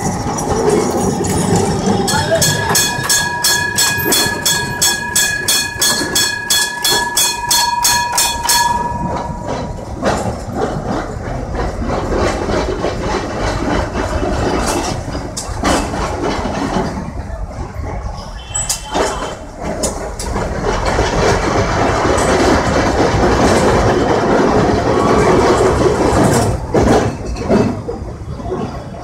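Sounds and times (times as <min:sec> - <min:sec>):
steady ringing tone: 0:00.0 - 0:10.2
tram car rumbling: 0:00.0 - 0:29.0
tram wheels clattering on tracks: 0:00.0 - 0:29.0.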